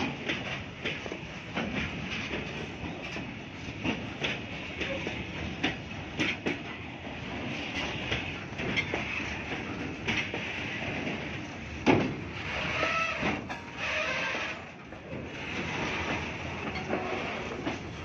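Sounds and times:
train wheels rumbling on rails: 0:00.0 - 0:18.0
wheels clacking over rail joints: 0:00.0 - 0:18.0.

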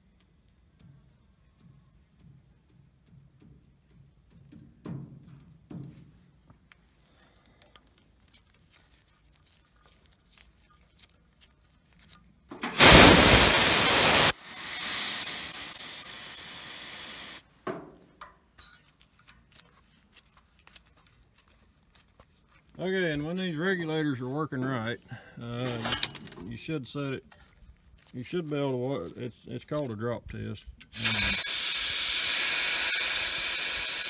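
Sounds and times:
oxygen hissing from regulator: 0:12.7 - 0:17.4, 0:30.9 - 0:34.0.

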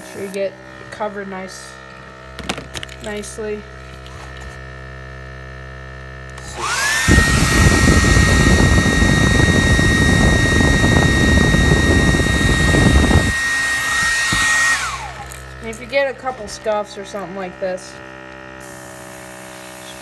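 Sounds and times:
electric motor whine: 0:00.0 - 0:20.0
heavy low rumble: 0:07.0 - 0:17.1.

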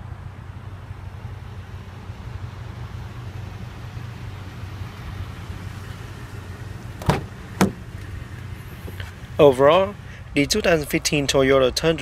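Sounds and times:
car door handle clicks: 0:07.0 - 0:07.8.

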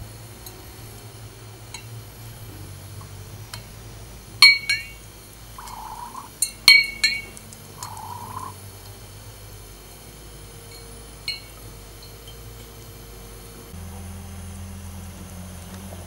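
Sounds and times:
metal parts clinking on glass jar: 0:05.6 - 0:08.5.

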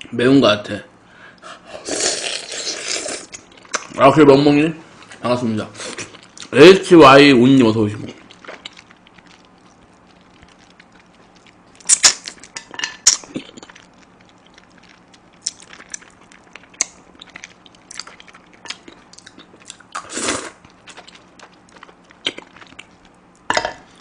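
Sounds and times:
chewing and sucking: 0:01.3 - 0:04.0, 0:05.8 - 0:06.5, 0:07.9 - 0:24.0.

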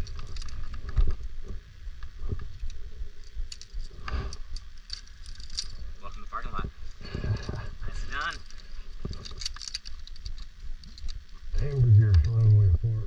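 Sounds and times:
climbing hardware clicking: 0:02.0 - 0:06.2, 0:08.2 - 0:11.3
wind rumble on microphone: 0:10.7 - 0:13.0
microphone handling noise: 0:11.5 - 0:13.0.

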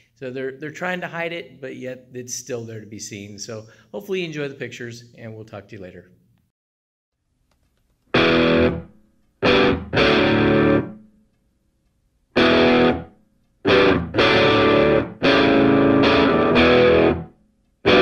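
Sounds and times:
distorted electric guitar chords: 0:08.1 - 0:11.0, 0:12.4 - 0:18.0.

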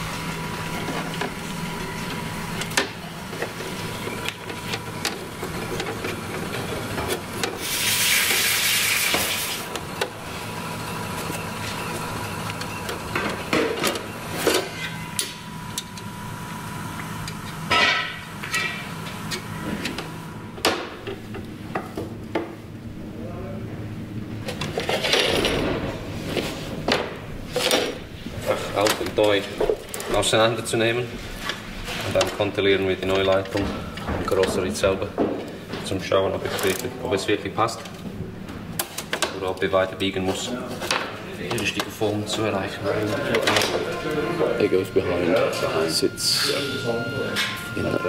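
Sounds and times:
steady hum: 0:00.0 - 0:48.0
hiss: 0:07.6 - 0:09.6.

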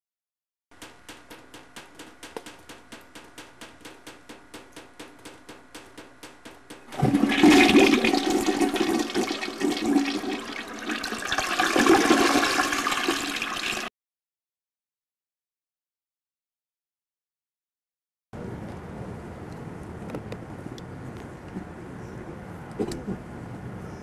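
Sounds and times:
rapid even ticking: 0:00.7 - 0:07.0.

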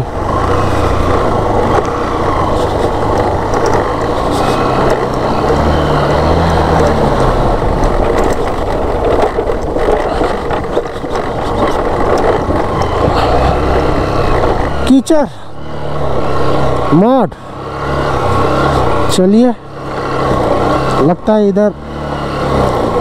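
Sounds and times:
wind noise: 0:00.0 - 0:14.9
road noise: 0:00.0 - 0:23.0
small motorcycle engine: 0:00.0 - 0:23.0.

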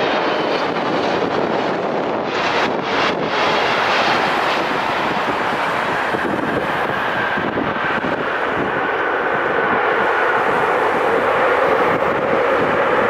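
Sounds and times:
jet engines roaring: 0:00.0 - 0:13.0.

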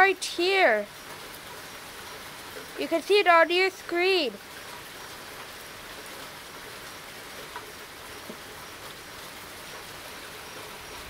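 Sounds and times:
rain on a wet street: 0:00.0 - 0:11.0.

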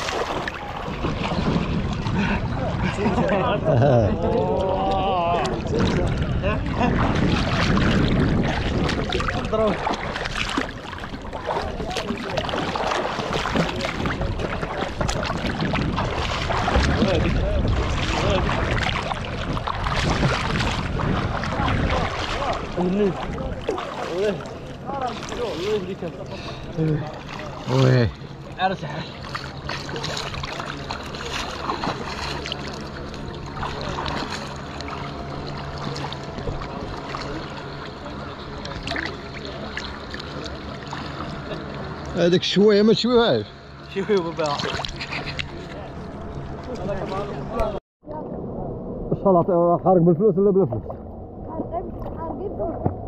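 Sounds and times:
water sloshing and splashing: 0:00.0 - 0:49.2, 0:50.4 - 0:53.0
steady low hum: 0:00.0 - 0:53.0
swimmers splashing: 0:04.4 - 0:42.0.

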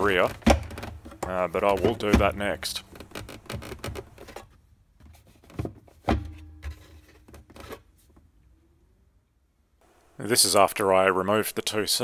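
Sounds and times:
sharp plastic knocks: 0:00.1 - 0:04.4.

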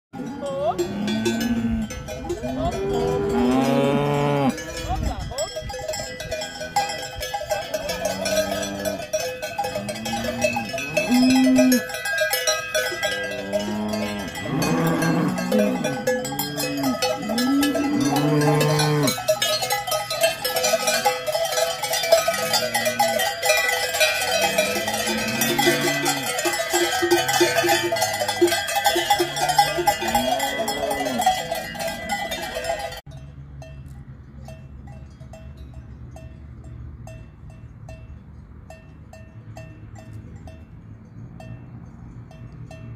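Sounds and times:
cows lowing: 0:00.2 - 0:04.8, 0:06.4 - 0:19.4, 0:22.1 - 0:32.8
cowbells clanging: 0:00.2 - 0:42.9.

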